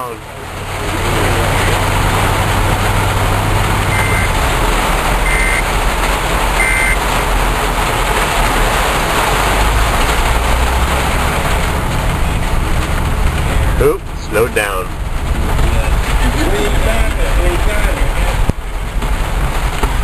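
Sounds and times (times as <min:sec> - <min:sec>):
heavy rain on car roof: 0:00.0 - 0:20.0
short high beeps: 0:03.9 - 0:04.4, 0:05.2 - 0:05.6, 0:06.6 - 0:07.0.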